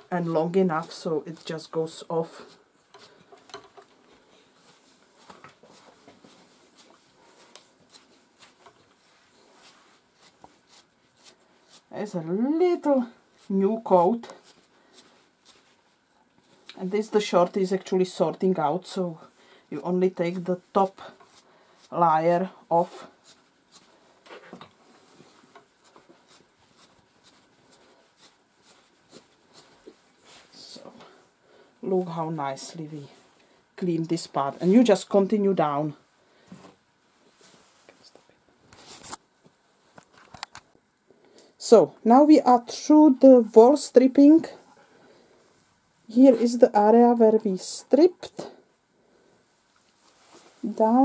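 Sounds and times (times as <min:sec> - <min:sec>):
faint pulling strokes on dog coat: 0:04.2 - 0:17.8, 0:20.0 - 0:31.3, 0:37.1 - 0:38.2, 0:49.5 - 0:51.0.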